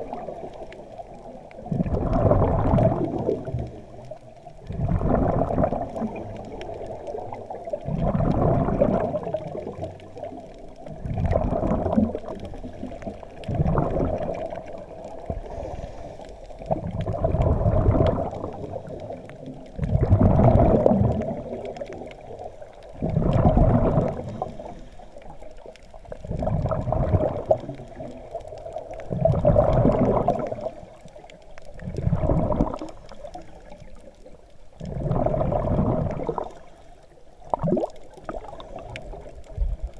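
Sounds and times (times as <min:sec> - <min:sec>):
exhaled bubbles gurgling: 0:00.0 - 0:39.9.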